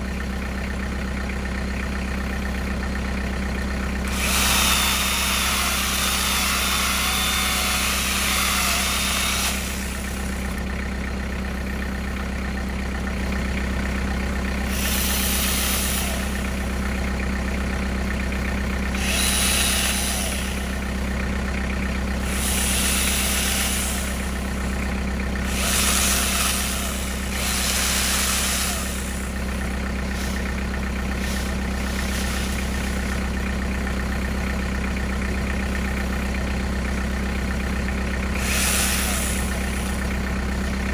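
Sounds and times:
tractor engine idling: 0.0 - 40.9
angle grinder chainsaw cutting branches: 4.0 - 10.6, 14.6 - 16.9, 18.8 - 21.0, 22.1 - 33.8, 38.3 - 40.2.

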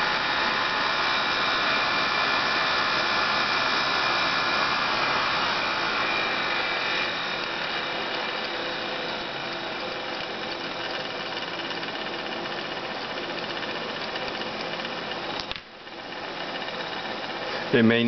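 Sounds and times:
blower fan humming and whining: 0.0 - 18.0
click: 15.3 - 15.7.

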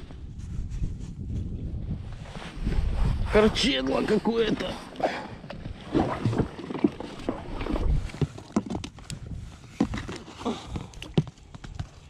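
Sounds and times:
knocks of fishing gear on boat: 9.7 - 10.3.

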